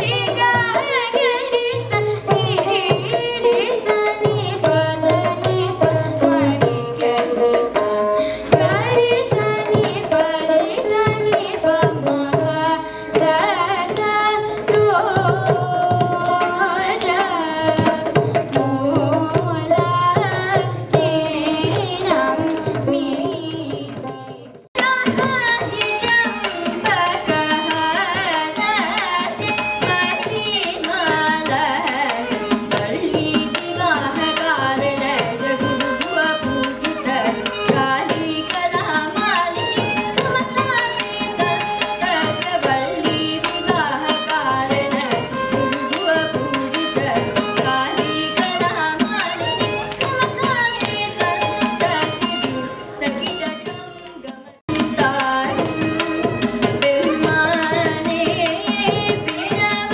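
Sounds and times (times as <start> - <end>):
girl singing: 0.0 - 59.9
veena playing: 0.0 - 59.9
violin playing: 24.8 - 59.9.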